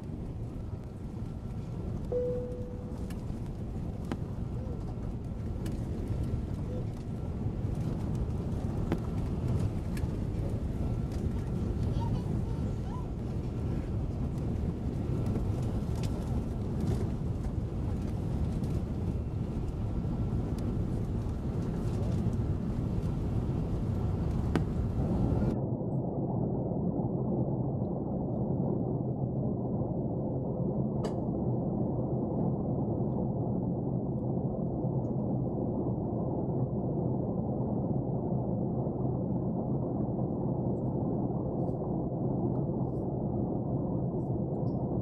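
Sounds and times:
airplane cabin roar: 0.0s - 25.6s
faint steady whine: 0.0s - 25.8s.

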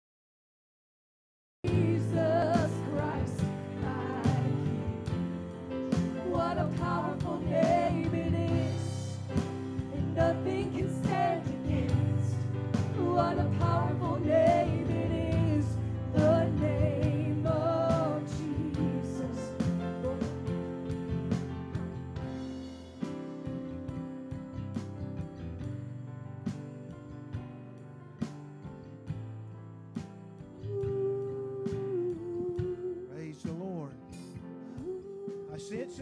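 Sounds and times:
drums: 1.6s - 36.0s
singers singing praise song: 1.7s - 21.8s
band playing: 1.7s - 25.7s.

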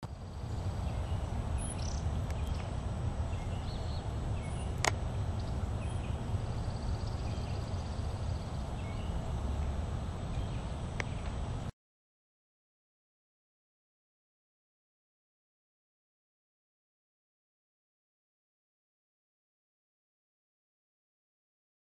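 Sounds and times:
small birds chirping: 0.0s - 11.6s
steady low rumble: 0.0s - 11.7s
faint bird trill: 0.3s - 9.2s
sharp click: 4.8s - 5.0s.

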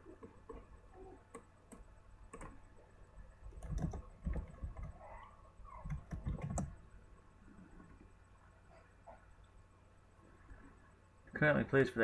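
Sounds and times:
keyboard typing clicks: 1.3s - 2.6s, 3.5s - 5.0s, 5.8s - 6.8s.

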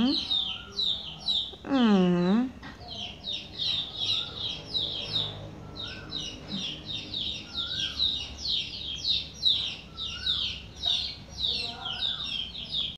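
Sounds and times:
small birds chirping: 0.0s - 12.9s
lower rising and falling bird call: 3.5s - 10.8s.

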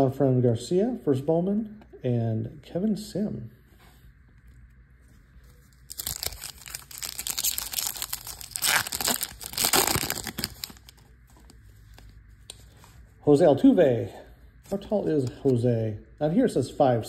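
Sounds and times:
foil wrapper crinkling and tearing: 5.5s - 12.1s.

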